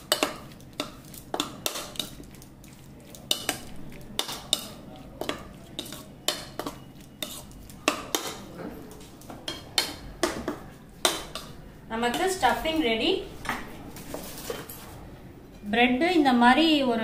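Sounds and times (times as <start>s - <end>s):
spoon clinking against bowl: 3.3s - 8.5s.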